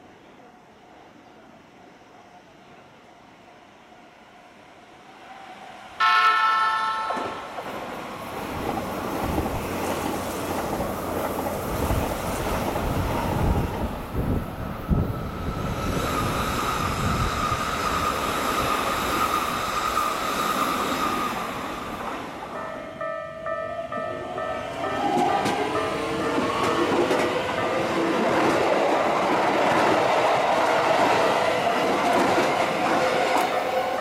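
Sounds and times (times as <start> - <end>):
trains passing with rumble: 0.0 - 34.0
train horn: 6.0 - 7.5.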